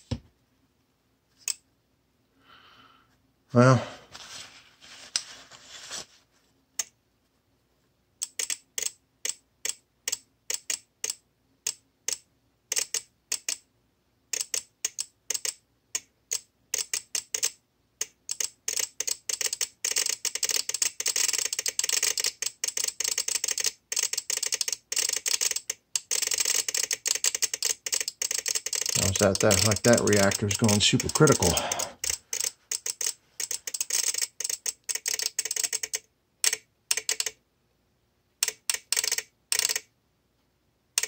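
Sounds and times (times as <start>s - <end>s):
relay clicking erratically: 18.3s - 37.3s.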